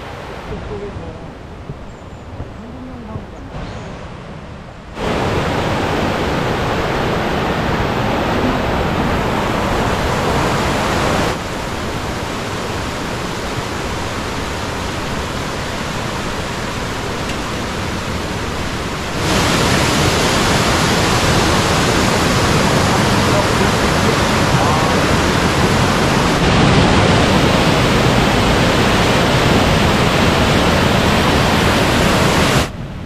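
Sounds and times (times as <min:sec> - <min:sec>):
mountain stream rushing over rocks: 0:00.0 - 0:01.8, 0:03.5 - 0:33.0.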